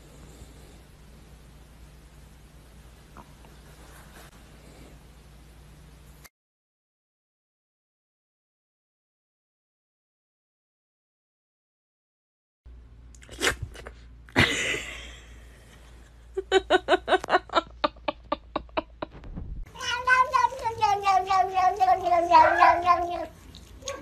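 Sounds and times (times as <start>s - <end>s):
thump: 19.0s - 19.7s
cat chirping: 19.8s - 24.0s
cat meowing: 19.8s - 24.0s.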